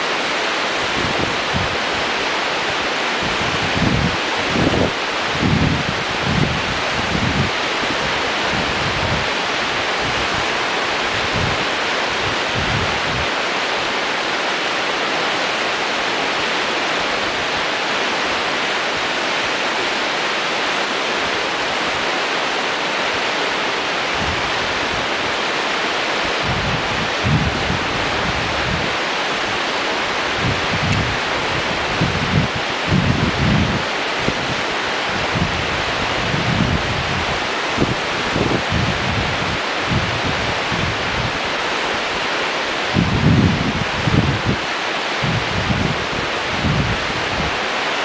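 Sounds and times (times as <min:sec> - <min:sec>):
river rapids rushing: 0:00.0 - 0:48.0
wind buffeting microphone: 0:00.7 - 0:13.6, 0:24.0 - 0:48.0.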